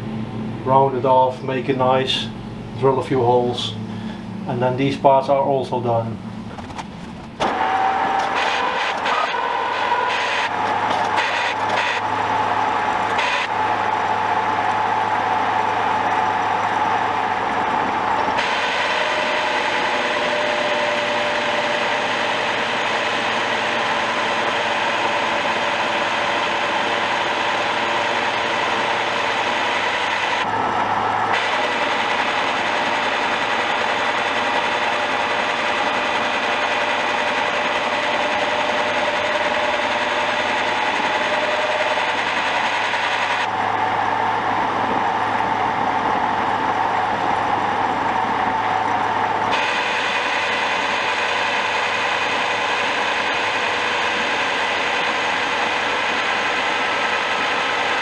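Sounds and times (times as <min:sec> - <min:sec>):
milling machine hum: 0:00.0 - 0:58.0
metal cutting noise: 0:07.4 - 0:58.0.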